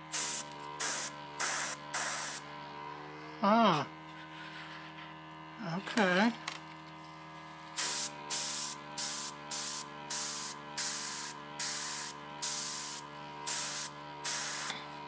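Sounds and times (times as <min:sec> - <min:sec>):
airbrush air hissing bursts: 0:00.0 - 0:02.4, 0:07.8 - 0:14.8
compressor motor humming: 0:00.0 - 0:15.0.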